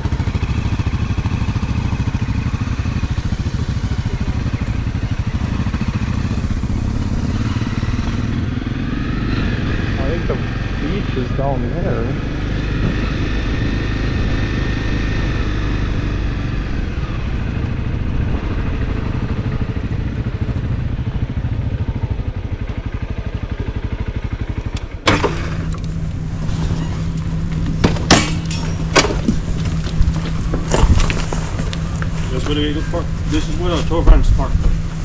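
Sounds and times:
motorcycle engine running: 0.0s - 35.0s
sharp clunks and clicks: 27.5s - 31.8s.

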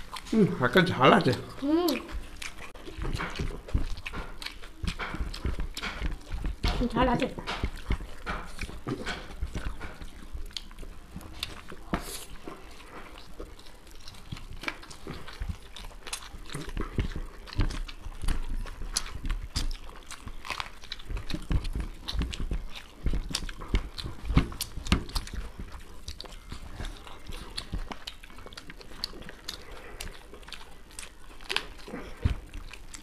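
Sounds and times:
people chewing food: 0.0s - 33.0s.

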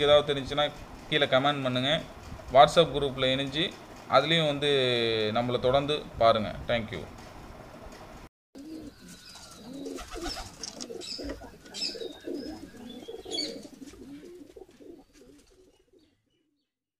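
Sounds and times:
pigeons cooing: 8.6s - 16.2s
small birds chirping: 8.6s - 16.8s.

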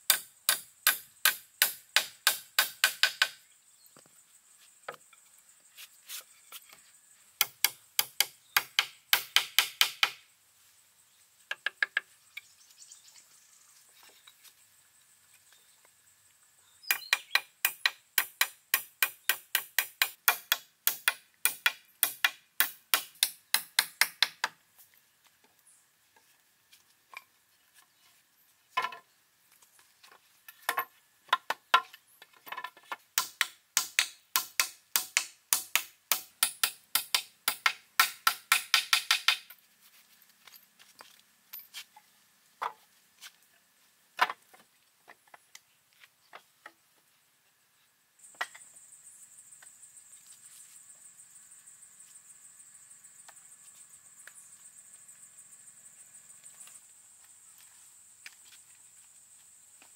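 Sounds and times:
hand tool striking wood: 0.1s - 3.4s, 7.4s - 10.2s, 16.9s - 24.6s, 30.7s - 39.6s.

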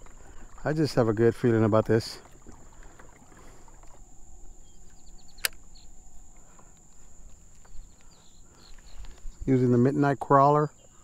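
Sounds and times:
kayak moving on calm water: 0.0s - 11.0s
faint ticks: 4.8s - 9.3s
sharp click: 5.4s - 5.7s.

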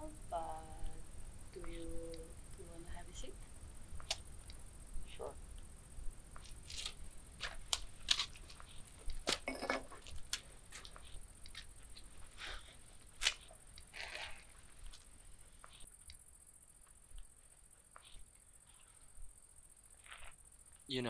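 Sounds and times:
clothing rustling: 6.4s - 15.1s.

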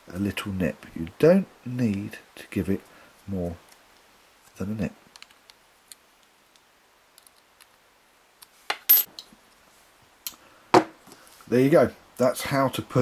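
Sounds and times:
sharp metallic clinks: 8.9s - 9.1s.

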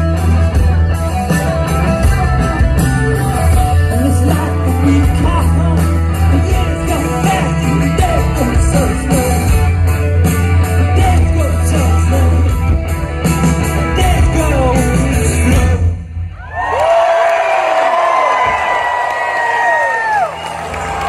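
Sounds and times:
live rock band playing: 0.0s - 16.3s.

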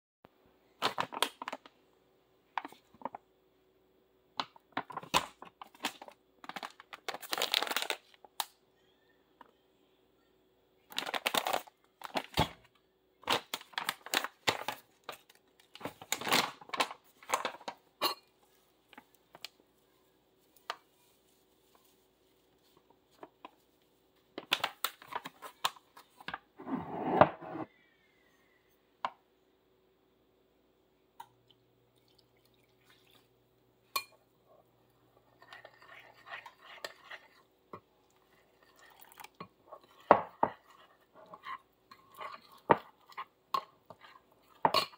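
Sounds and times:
packaging crinkling and rustling: 0.8s - 1.7s, 4.7s - 8.2s, 10.9s - 12.6s, 13.2s - 17.8s, 24.4s - 26.4s.

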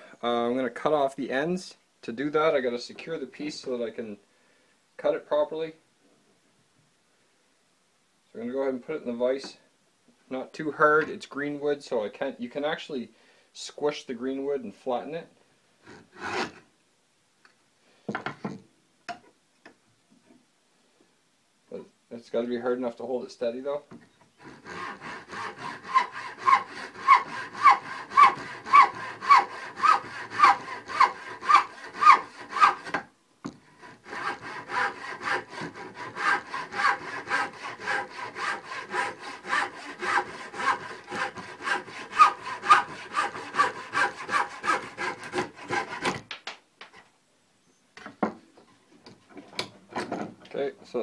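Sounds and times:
hand saw cutting wood: 15.9s - 16.6s, 24.4s - 33.1s, 33.8s - 46.2s.

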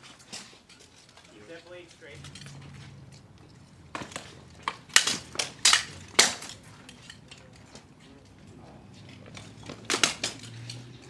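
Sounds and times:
swords clashing: 3.9s - 10.9s.

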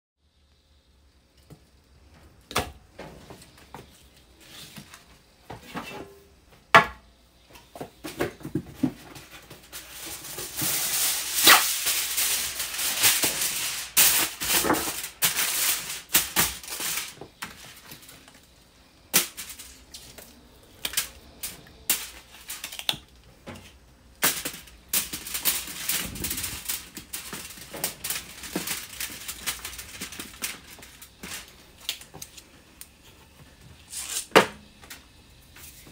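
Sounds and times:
aluminium foil crinkling: 8.8s - 34.3s.

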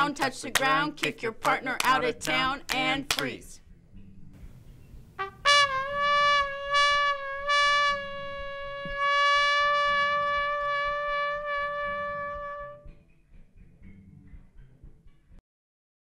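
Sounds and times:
held brass-like musical note: 5.2s - 13.0s.

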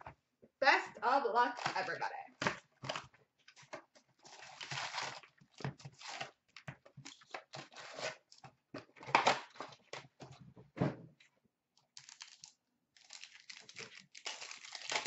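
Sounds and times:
plastic shrink-wrap crinkling: 4.2s - 6.4s, 12.0s - 15.0s.

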